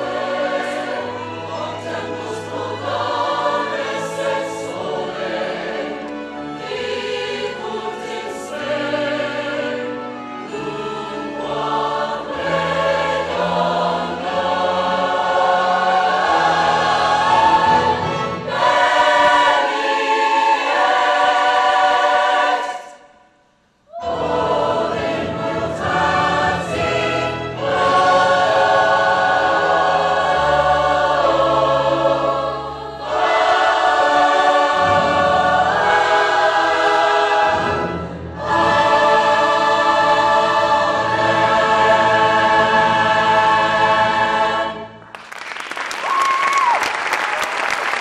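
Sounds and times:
choir singing with orchestra: 0:00.0 - 0:45.2
audience applause: 0:45.1 - 0:48.0.

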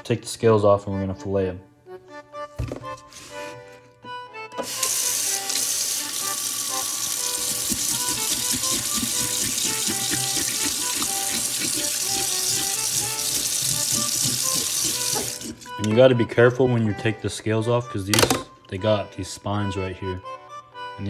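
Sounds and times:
faucet water stream into sink: 0:04.6 - 0:15.8.

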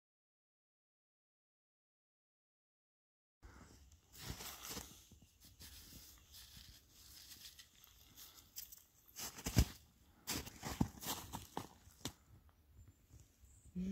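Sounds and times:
footsteps crunching in snow: 0:04.1 - 0:12.2.

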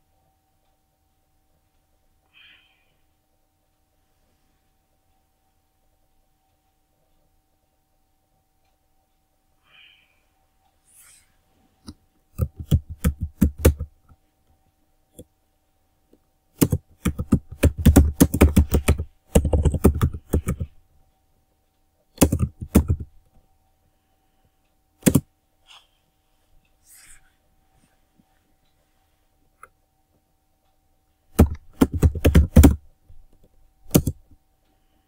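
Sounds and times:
computer keyboard typing: 0:12.3 - 0:14.1, 0:16.6 - 0:20.8, 0:22.2 - 0:23.2, 0:25.0 - 0:25.3, 0:31.3 - 0:32.8, 0:33.9 - 0:34.3.

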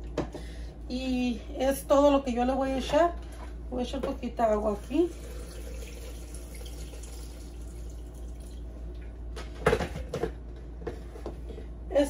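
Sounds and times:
water pouring into a jar: 0:05.1 - 0:08.7.

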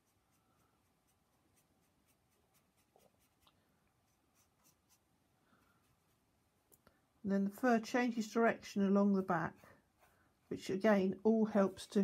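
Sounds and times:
paintbrush strokes on paper: 0:00.0 - 0:06.7, 0:07.6 - 0:12.0.

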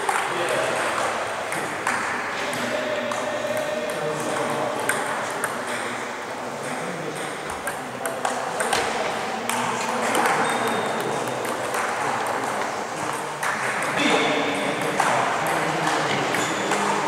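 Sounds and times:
table tennis balls clicking: 0:06.6 - 0:17.0.

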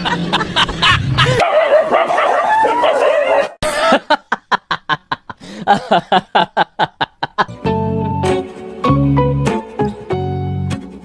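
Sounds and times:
dog yelping and whining: 0:01.6 - 0:03.6.

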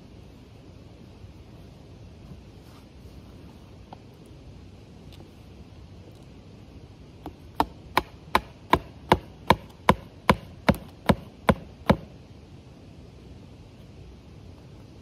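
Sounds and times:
hammer striking a stake: 0:07.2 - 0:12.1.

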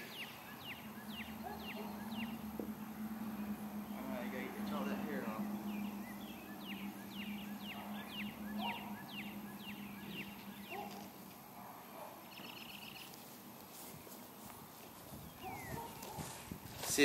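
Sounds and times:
songbird whistling: 0:00.0 - 0:02.8, 0:05.5 - 0:11.0
bird buzzy trill: 0:00.0 - 0:11.0.

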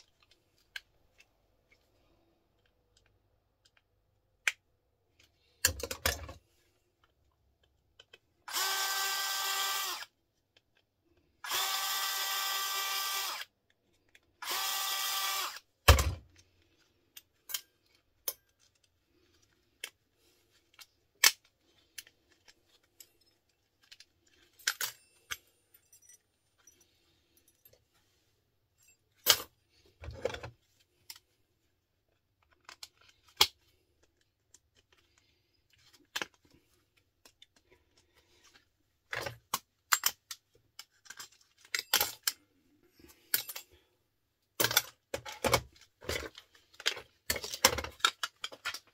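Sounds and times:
cordless drill whining: 0:08.5 - 0:10.1, 0:11.4 - 0:13.5, 0:14.4 - 0:15.7
small parts clattering: 0:15.8 - 0:28.0, 0:32.1 - 0:43.9, 0:44.5 - 0:48.9.

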